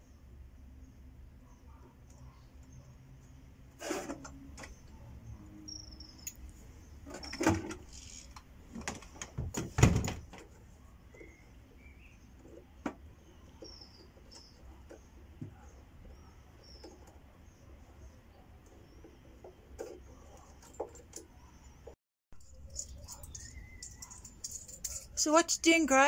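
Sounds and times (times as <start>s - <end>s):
drawer on ball-bearing slides: 3.8s - 4.5s
faint bird chirps: 10.8s - 12.6s, 21.3s - 25.2s.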